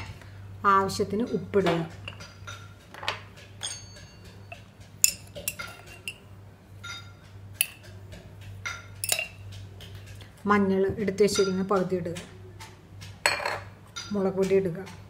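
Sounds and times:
low steady hum: 0:00.0 - 0:15.0
spoon clinking on containers: 0:01.3 - 0:10.1, 0:13.2 - 0:14.2.

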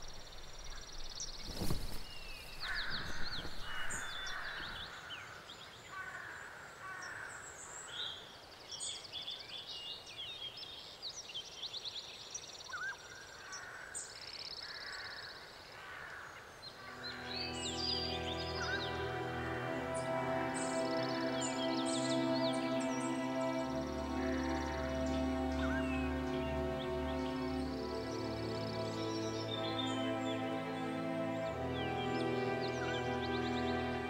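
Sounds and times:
songbirds chirping and trilling: 0:00.0 - 0:34.0
crows cawing: 0:02.5 - 0:05.3, 0:05.9 - 0:07.4, 0:14.6 - 0:15.2, 0:15.8 - 0:17.0.

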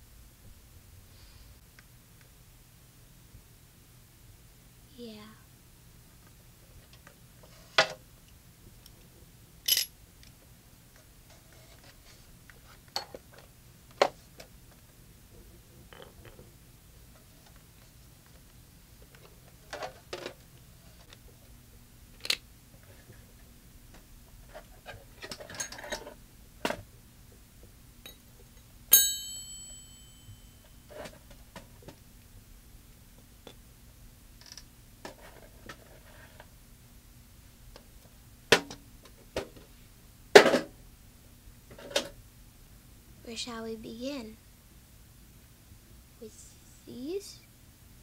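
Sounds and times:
faint steady hum: 0:00.0 - 0:48.0
metal tools clinking on hard floor: 0:09.7 - 0:09.9, 0:28.9 - 0:30.8.

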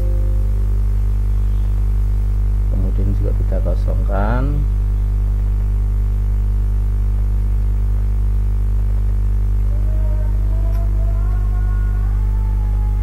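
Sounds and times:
faint wavering tone: 0:00.0 - 0:01.8
electrical mains hum: 0:00.0 - 0:13.0.

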